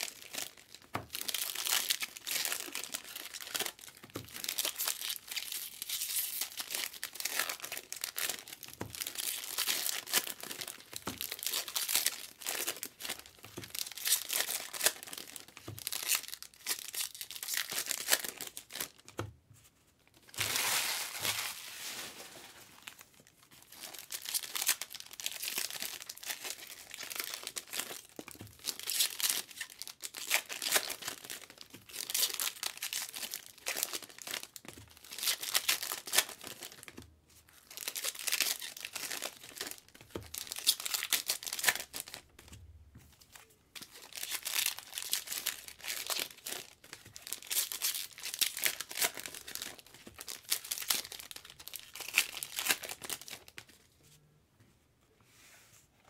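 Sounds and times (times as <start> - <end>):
foil wrappers crinkling and tearing: 0.0 - 19.1, 20.2 - 37.0, 37.6 - 42.3, 43.8 - 53.7.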